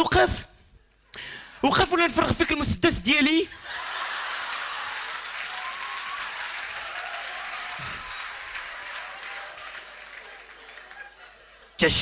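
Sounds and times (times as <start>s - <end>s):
audience applauding: 3.7s - 11.8s.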